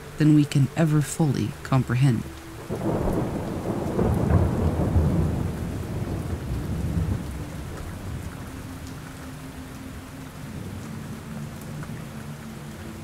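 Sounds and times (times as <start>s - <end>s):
steady rain falling: 0.0s - 13.0s
low thunder rumble: 2.6s - 8.9s.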